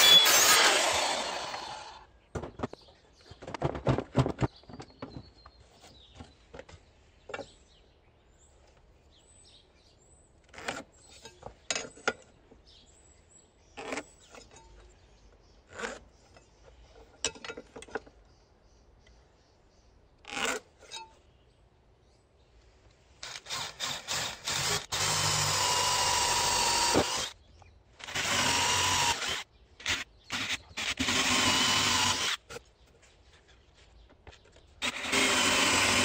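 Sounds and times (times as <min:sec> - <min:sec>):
circular saw: 0:00.0 - 0:02.1, 0:23.2 - 0:27.4, 0:28.0 - 0:32.5, 0:34.8 - 0:36.0.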